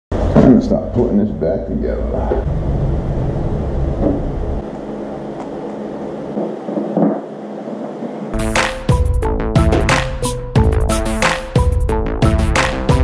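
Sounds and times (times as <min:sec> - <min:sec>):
low rumble: 0:00.2 - 0:08.4.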